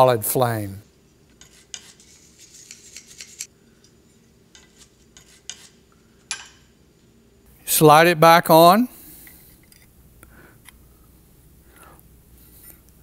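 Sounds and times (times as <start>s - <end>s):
faint steady hum: 0.0s - 13.0s
wire brush scraping metal: 1.4s - 3.5s.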